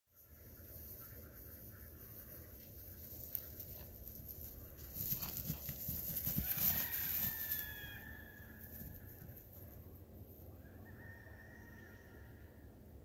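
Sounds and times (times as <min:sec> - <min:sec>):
grass rustling: 0:00.1 - 0:10.4.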